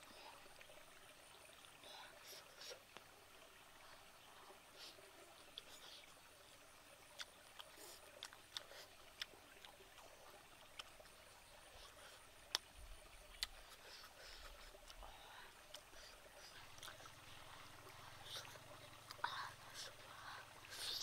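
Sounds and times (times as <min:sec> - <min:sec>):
faint stream murmur: 0:00.0 - 0:21.0
lip smacks while chewing: 0:07.1 - 0:11.0, 0:13.3 - 0:15.1, 0:15.7 - 0:17.6.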